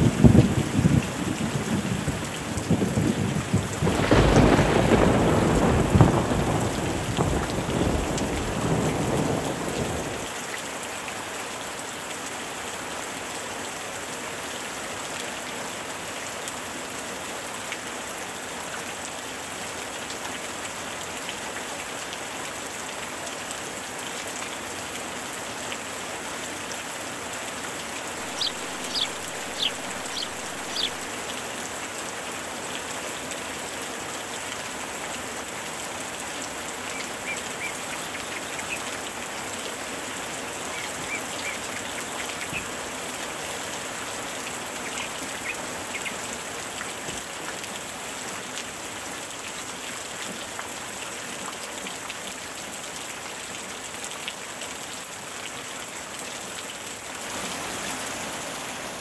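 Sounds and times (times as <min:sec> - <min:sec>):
rain falling on water: 0:00.0 - 0:59.0
thunder rumbling: 0:02.8 - 0:10.3, 0:28.2 - 0:31.1.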